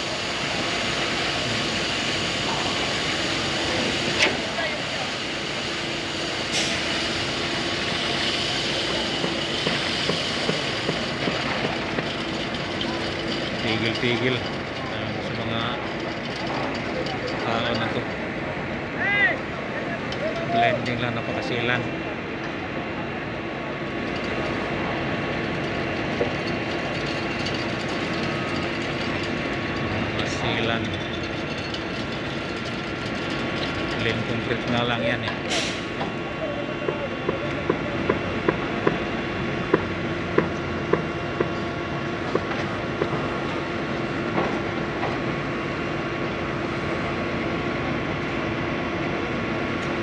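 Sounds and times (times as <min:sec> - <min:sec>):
concrete pump engine hum: 0:00.0 - 0:50.0.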